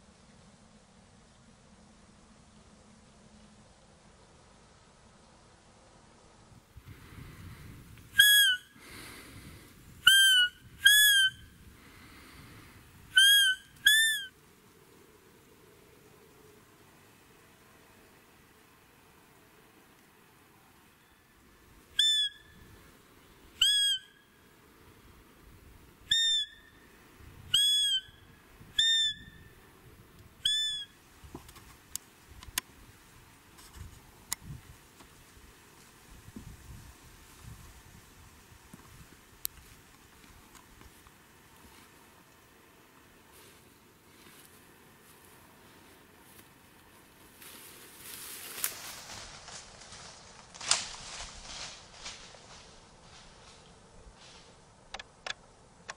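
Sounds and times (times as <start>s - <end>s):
deer call squeaks: 8.2s - 8.7s, 10.0s - 11.5s, 13.1s - 14.3s, 22.0s - 22.6s, 23.6s - 24.2s, 26.1s - 26.7s, 27.5s - 28.2s, 28.8s - 29.4s, 30.4s - 31.0s
deer call squeaky bleats: 13.2s - 14.3s, 30.4s - 30.9s
faint sharp clicks: 54.9s - 55.9s.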